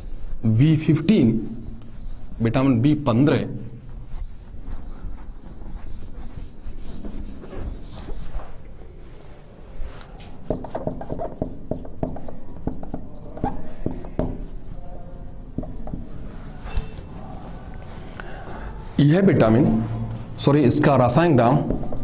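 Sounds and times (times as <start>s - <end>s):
duster wiping whiteboard: 0.0s - 18.0s, 21.2s - 22.0s
marker squeaking on whiteboard: 10.2s - 18.7s, 21.4s - 22.0s.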